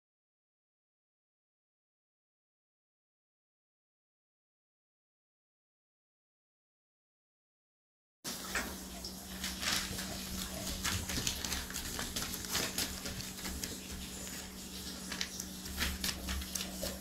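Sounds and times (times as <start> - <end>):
dog claws scratching crate: 9.3 - 17.0.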